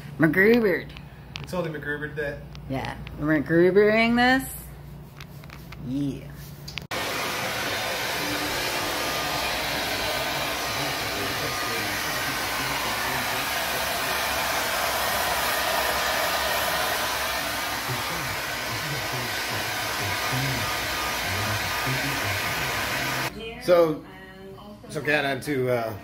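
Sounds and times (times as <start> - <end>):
hair dryer blowing air: 6.9 - 23.3.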